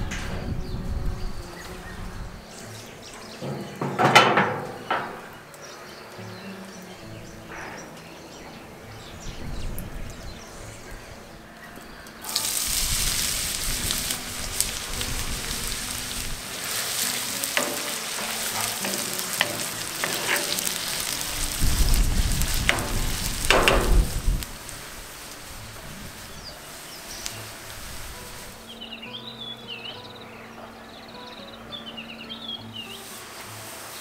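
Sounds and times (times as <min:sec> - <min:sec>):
onions sizzling in oil: 0:12.2 - 0:29.3, 0:32.8 - 0:34.0.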